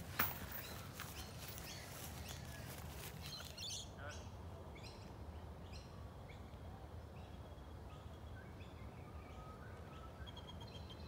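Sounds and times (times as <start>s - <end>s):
birds chirping: 0.0s - 4.3s
faint low outdoor rumble: 0.0s - 11.0s.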